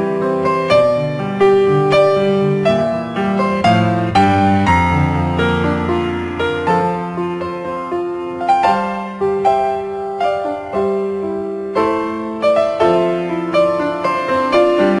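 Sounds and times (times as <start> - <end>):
slow piano music: 0.0 - 15.0.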